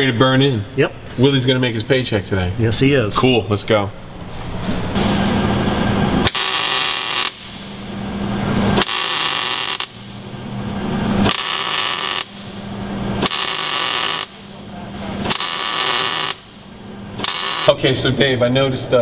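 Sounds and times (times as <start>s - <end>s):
low hum: 0.0s - 18.2s
welder arc crackling: 6.2s - 7.7s, 8.8s - 10.1s, 11.2s - 12.6s, 13.2s - 14.5s, 15.2s - 16.6s, 17.2s - 17.7s.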